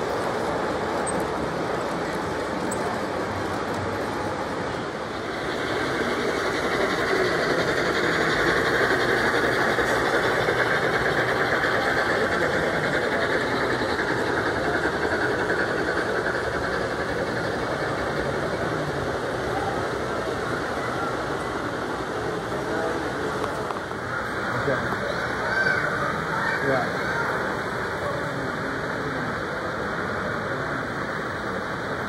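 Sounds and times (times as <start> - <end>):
metal wheels rattling on rails: 0.0 - 19.6.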